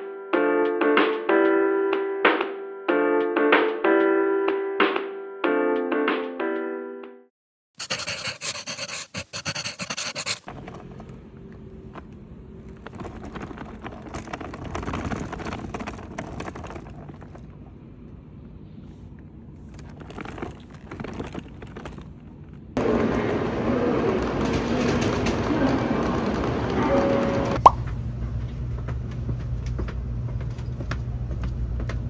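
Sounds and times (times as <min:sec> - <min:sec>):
suitcase wheels rolling on asphalt: 0:10.5 - 0:18.6, 0:19.5 - 0:27.6
train station platform noise: 0:22.8 - 0:32.0.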